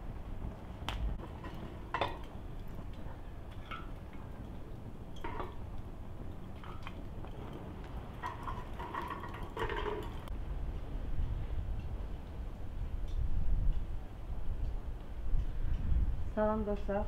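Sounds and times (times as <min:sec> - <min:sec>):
metallic clinks and knocks: 0:01.2 - 0:10.3.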